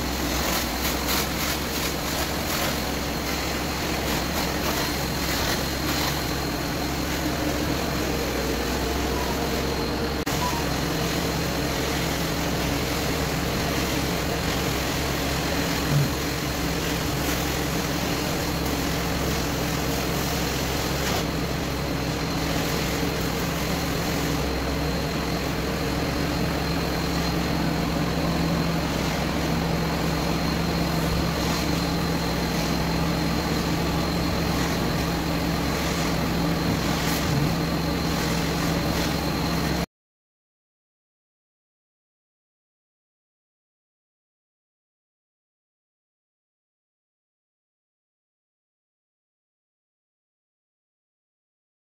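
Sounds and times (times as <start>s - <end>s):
cleaning wand on carpet: 0.0s - 39.8s
vacuum motor whining: 0.0s - 39.8s.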